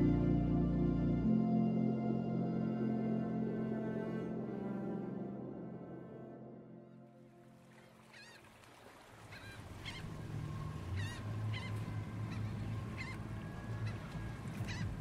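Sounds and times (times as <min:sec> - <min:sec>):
birds honking calls: 0:09.2 - 0:15.0.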